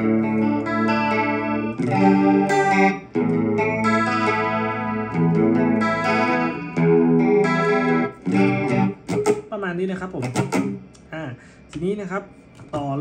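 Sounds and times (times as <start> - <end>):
electric guitar chords with chorus: 0.0 - 9.4.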